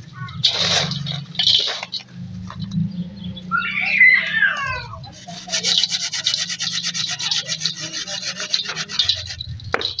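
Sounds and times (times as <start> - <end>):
gritty clumps crushed in steel bowl: 0.4 - 2.8, 5.1 - 10.0.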